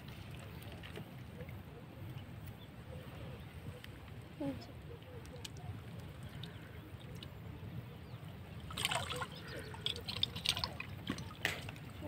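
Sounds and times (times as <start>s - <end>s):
water splashing and dripping: 8.5s - 12.0s.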